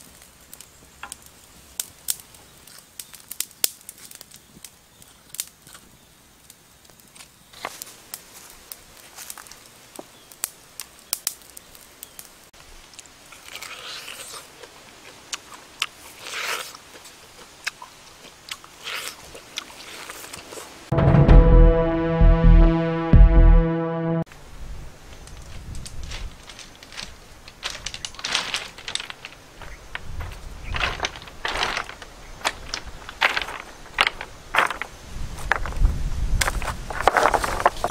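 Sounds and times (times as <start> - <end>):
wood fire crackling: 0.0 - 13.2, 25.0 - 34.9
teeth tearing and crunching meat: 13.3 - 20.6.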